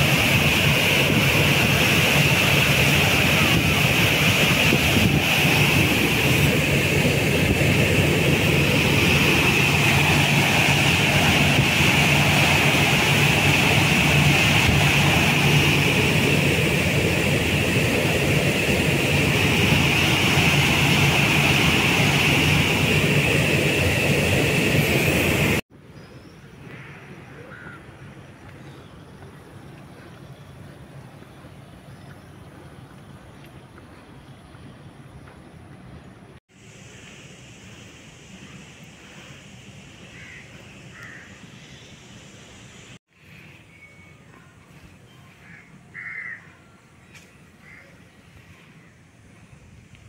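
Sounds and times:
water rushing through spillway: 0.0 - 25.6.

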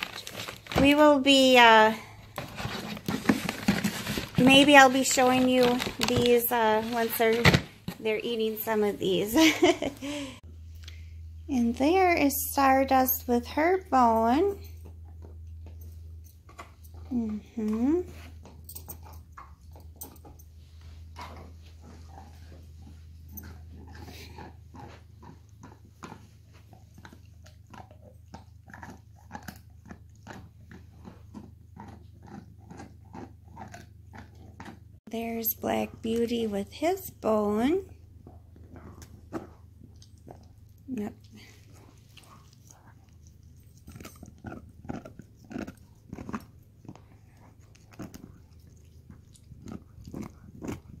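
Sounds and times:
dog gnawing on a bone: 14.8 - 35.3, 37.7 - 51.0.

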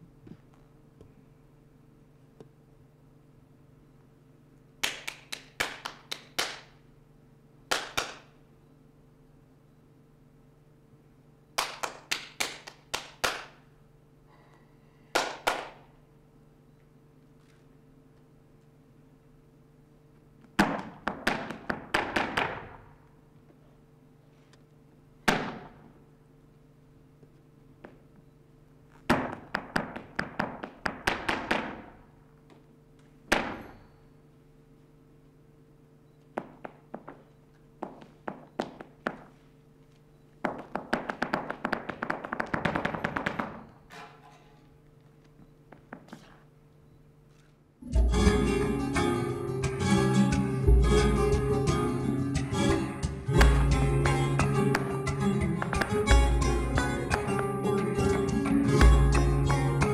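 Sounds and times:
dancer's shoes striking floor: 20.5 - 22.8, 29.0 - 32.0, 36.3 - 39.5, 40.4 - 43.7, 45.3 - 46.4, 54.7 - 56.4.

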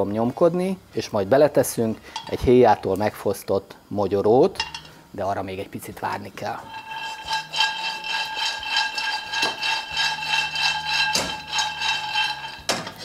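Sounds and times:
nuts rattling in frying pan: 6.4 - 13.0
steady high ringing: 6.4 - 13.0.

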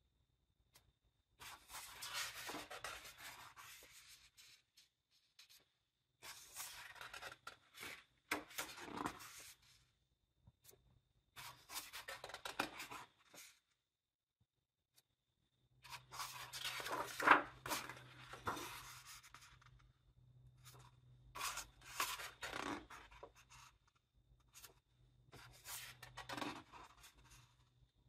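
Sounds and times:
book pages turning: 1.4 - 4.6, 6.2 - 9.6, 15.9 - 19.7.

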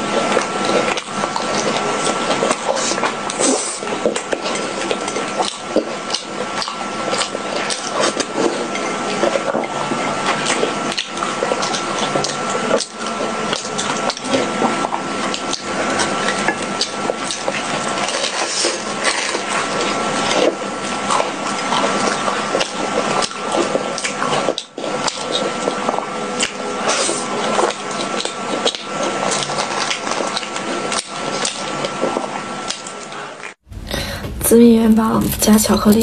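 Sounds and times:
wet sticky chewing: 0.0 - 33.6.

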